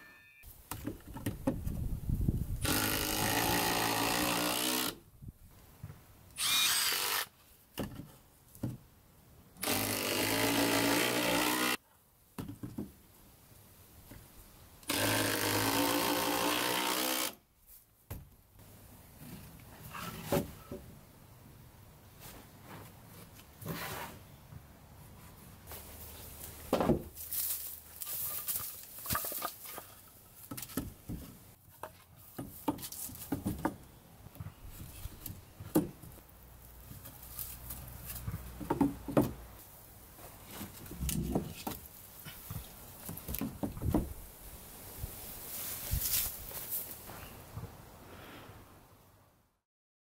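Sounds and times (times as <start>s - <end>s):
knocks and scrapes on wooden bench: 19.2s - 20.9s, 22.2s - 24.3s, 40.2s - 44.1s.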